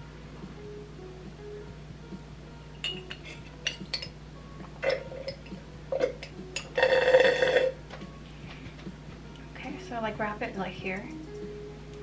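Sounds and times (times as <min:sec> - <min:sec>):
person gulping: 0:04.8 - 0:05.3
glass jar clicks: 0:04.8 - 0:06.8.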